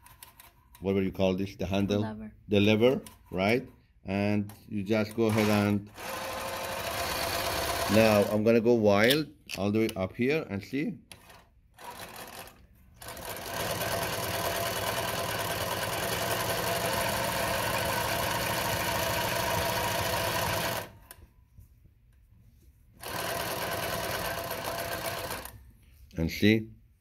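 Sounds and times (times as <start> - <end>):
sewing machine stitching: 5.0 - 8.5, 11.1 - 21.1, 23.0 - 25.6.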